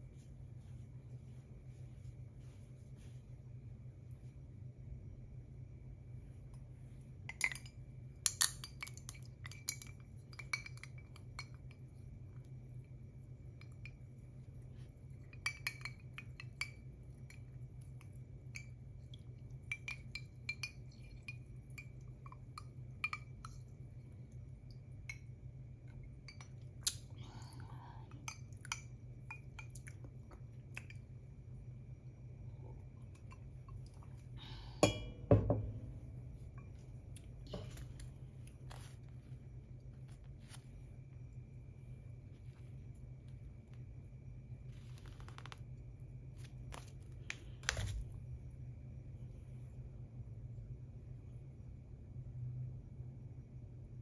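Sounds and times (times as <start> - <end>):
faint steady hum: 0.0 - 54.0
ceramic cup clinking: 7.3 - 11.8, 15.2 - 17.5, 34.8 - 35.9.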